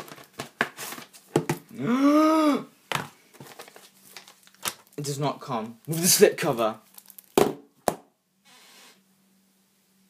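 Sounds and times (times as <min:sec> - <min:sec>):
cardboard packaging handled: 0:00.0 - 0:01.6, 0:03.3 - 0:05.0.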